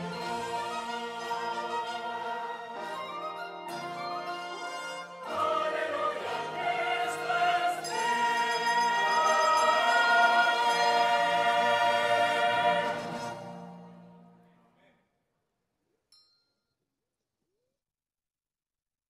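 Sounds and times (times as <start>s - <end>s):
mixed choir singing: 0.0s - 3.2s, 5.2s - 13.9s
handbells ringing: 7.8s - 11.3s.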